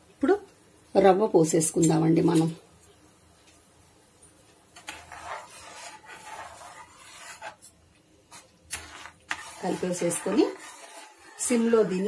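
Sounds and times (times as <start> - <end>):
ladle scraping in pan: 4.8 - 7.7, 8.3 - 12.0.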